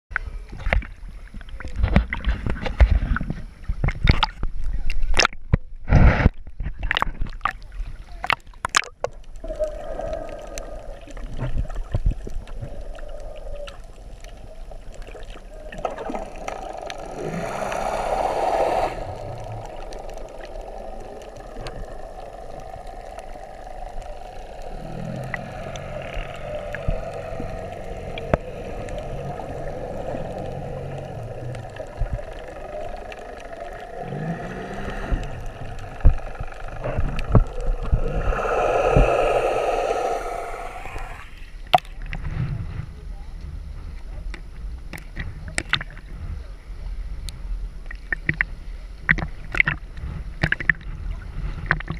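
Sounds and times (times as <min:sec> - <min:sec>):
low underwater hum: 0:05.7 - 0:51.9
water splashing: 0:08.7 - 0:41.5
underwater bubbling rush: 0:08.8 - 0:41.6.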